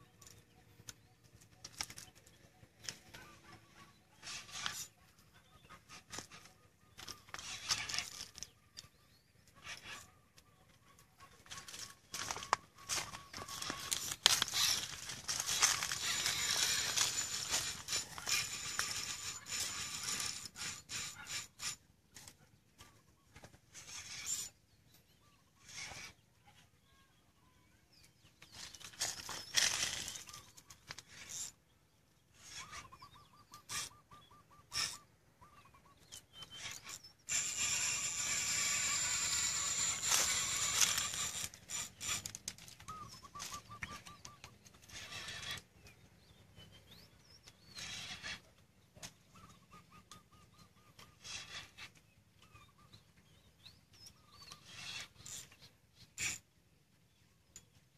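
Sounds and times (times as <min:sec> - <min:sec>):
fishing reel drag buzzing: 0:04.2 - 0:05.0, 0:05.9 - 0:08.5, 0:11.5 - 0:21.8, 0:23.7 - 0:24.6, 0:25.6 - 0:26.2, 0:28.5 - 0:31.6, 0:32.4 - 0:33.0, 0:34.7 - 0:35.0, 0:36.4 - 0:44.1, 0:44.8 - 0:45.7, 0:47.7 - 0:48.5, 0:51.0 - 0:51.9, 0:54.5 - 0:56.4
handling rustle: 0:11.5 - 0:18.4.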